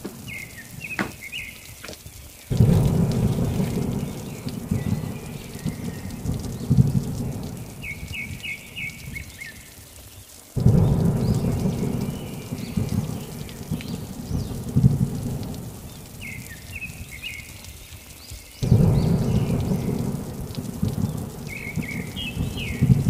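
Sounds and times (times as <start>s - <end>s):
rain: 0.0s - 23.0s
bird chirps: 0.2s - 1.8s
rolling thunder rumble: 2.5s - 9.2s, 10.6s - 17.1s, 18.6s - 23.0s.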